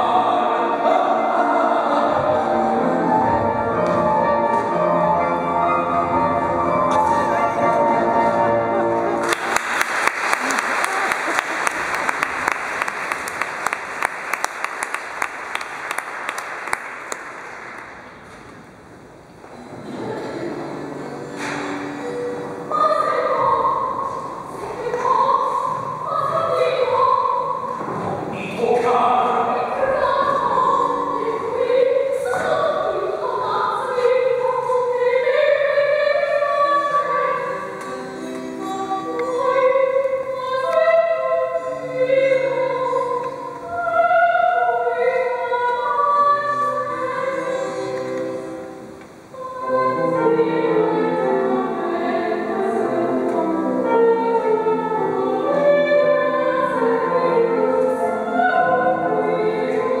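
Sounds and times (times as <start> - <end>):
opera singing: 0.0 - 9.2, 22.0 - 48.7, 49.3 - 60.0
instrumental accompaniment: 0.5 - 9.4.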